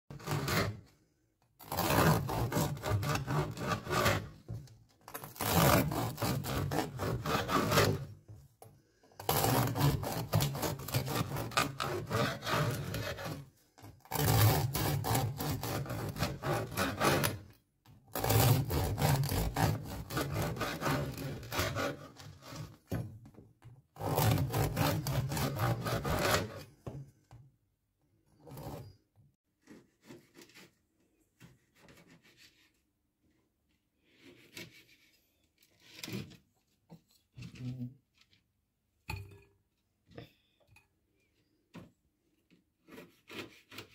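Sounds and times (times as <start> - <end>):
knife sawing through bread: 0.1 - 0.9, 1.6 - 4.5, 5.1 - 8.2, 9.2 - 17.5, 18.1 - 22.9, 24.0 - 26.8, 28.4 - 29.0, 34.0 - 35.1, 42.8 - 43.9.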